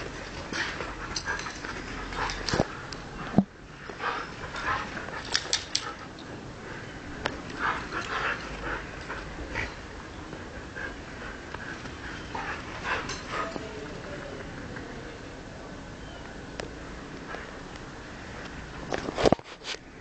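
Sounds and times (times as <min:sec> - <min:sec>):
dogs play-fighting vocal noises: 0:00.1 - 0:02.9, 0:03.8 - 0:06.2, 0:07.5 - 0:10.0, 0:10.6 - 0:13.6.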